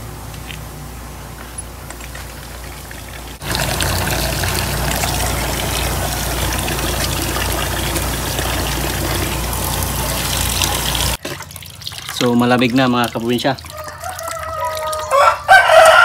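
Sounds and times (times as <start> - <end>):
water pouring into metal pot: 3.2 - 15.2.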